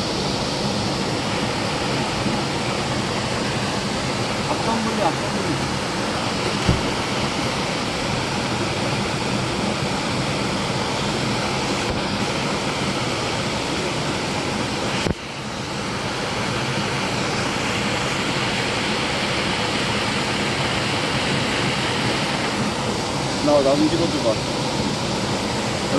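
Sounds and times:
waterfall pouring into pool: 0:00.0 - 0:25.9
brief thump: 0:06.6 - 0:07.0.

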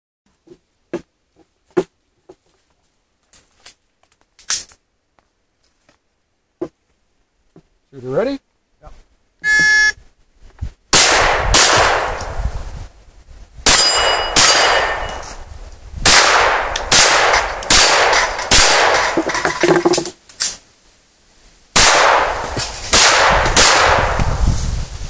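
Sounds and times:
pistol shots: 0:10.9 - 0:12.3, 0:13.7 - 0:15.2, 0:16.0 - 0:19.0, 0:21.8 - 0:24.2
steel targets clanging: 0:13.7 - 0:15.4.

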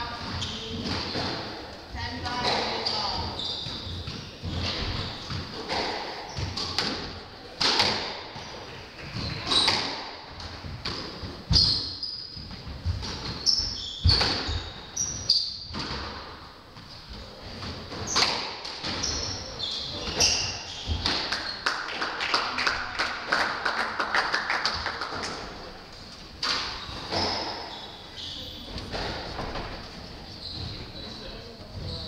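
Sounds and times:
squash ball hitting rackets and walls: 0:00.0 - 0:01.7, 0:02.3 - 0:16.5, 0:17.3 - 0:21.7, 0:26.4 - 0:29.8
shoes squeaking on hardwood: 0:02.2 - 0:06.9, 0:08.4 - 0:16.1, 0:16.8 - 0:21.7, 0:26.5 - 0:32.0
spectators clapping: 0:21.3 - 0:25.6.

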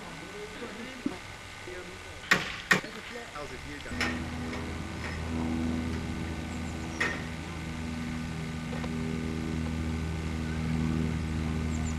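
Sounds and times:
low engine-like drone: 0:02.9 - 0:11.9
sharp metallic clank: 0:03.9 - 0:07.6.

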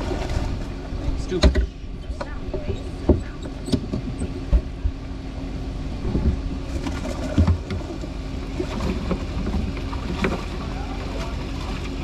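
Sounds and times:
steady low hum: 0:00.0 - 0:12.0
knocks and thumps of fish: 0:01.3 - 0:04.7, 0:06.0 - 0:11.9.

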